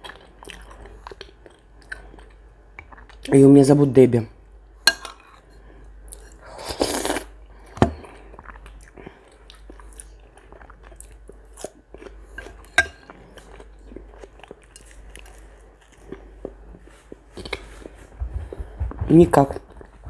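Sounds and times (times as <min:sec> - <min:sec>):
chewing: 0:00.0 - 0:03.3, 0:04.9 - 0:18.6
metal spoon clinking on bowl: 0:04.9 - 0:05.3, 0:12.7 - 0:13.1
slurping soup: 0:06.2 - 0:07.3.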